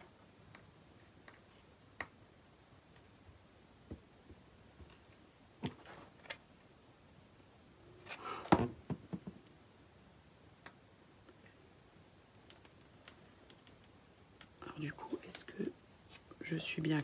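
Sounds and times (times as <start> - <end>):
rustling: 4.7 - 6.4.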